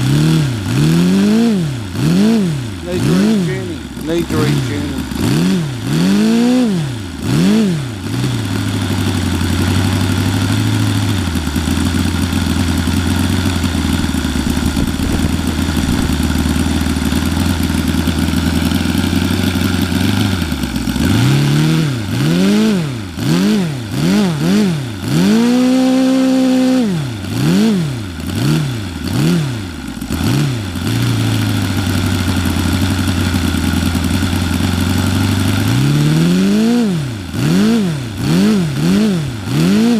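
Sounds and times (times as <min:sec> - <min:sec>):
model engine running and revving: 0:00.0 - 0:39.9
man talking: 0:02.8 - 0:05.1.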